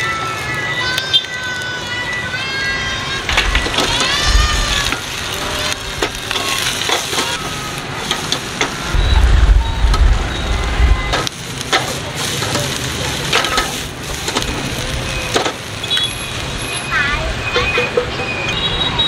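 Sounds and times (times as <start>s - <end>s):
low rumble: 3.0s - 6.8s, 8.8s - 11.7s
food sizzling in a pan: 3.3s - 18.0s.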